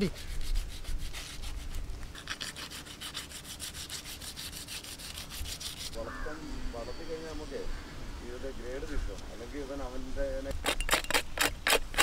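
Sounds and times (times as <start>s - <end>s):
knife scraping fish scales: 0.0s - 6.0s.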